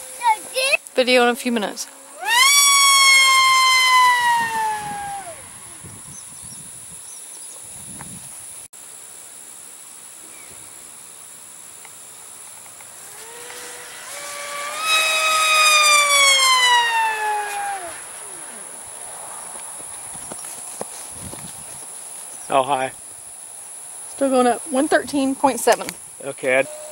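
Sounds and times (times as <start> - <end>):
high-pitched insect drone: 1.9 - 7.2, 12.8 - 20.5, 23.7 - 26.9
model plane motor whining: 2.1 - 5.5, 12.9 - 18.8.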